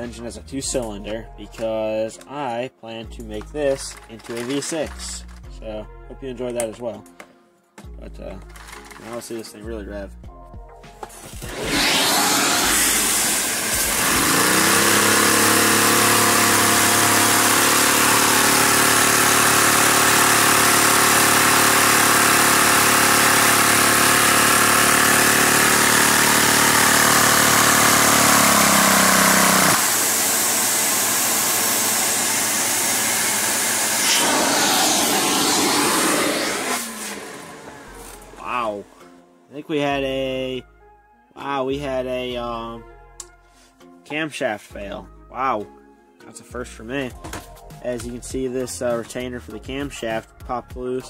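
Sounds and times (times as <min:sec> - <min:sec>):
vacuum cleaner rushing: 0:11.3 - 0:38.5
model engine humming: 0:11.4 - 0:38.4.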